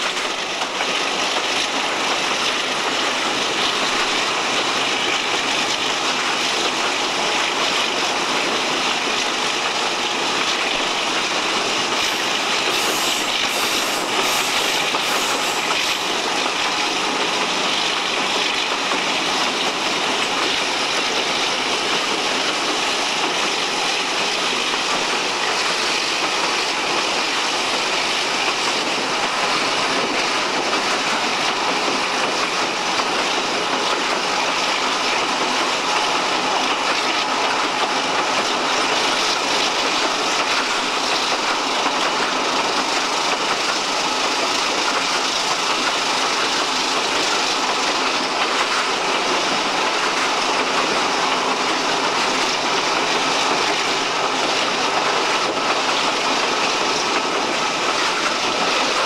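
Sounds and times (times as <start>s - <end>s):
diesel locomotive running: 0.0s - 59.0s.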